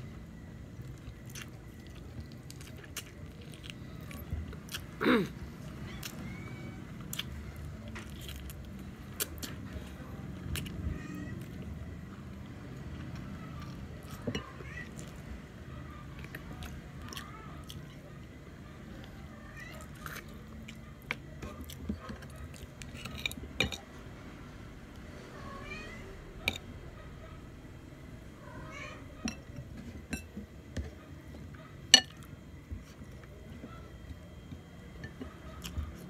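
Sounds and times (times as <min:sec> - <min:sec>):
cat meowing: 0:05.8 - 0:06.8, 0:10.8 - 0:11.6, 0:14.4 - 0:15.1, 0:25.4 - 0:26.3, 0:28.4 - 0:29.3.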